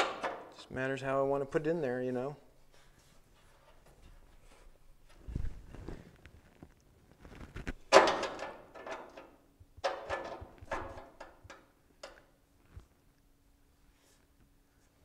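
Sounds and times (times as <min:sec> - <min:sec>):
scraping and knocking on metal: 0:07.9 - 0:12.2.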